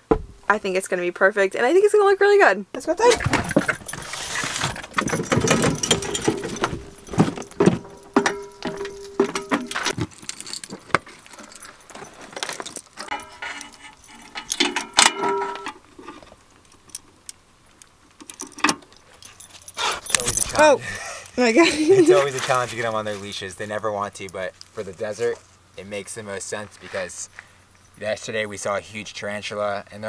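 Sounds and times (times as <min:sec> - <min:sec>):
leash clips jangling: 0:03.0 - 0:15.1, 0:18.2 - 0:21.4.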